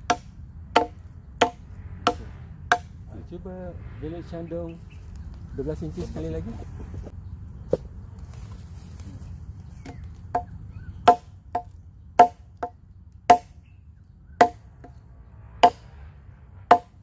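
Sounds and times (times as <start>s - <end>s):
machete chopping wooden log: 0.0s - 3.0s, 9.8s - 13.6s, 14.4s - 15.0s, 15.6s - 16.0s, 16.7s - 17.0s.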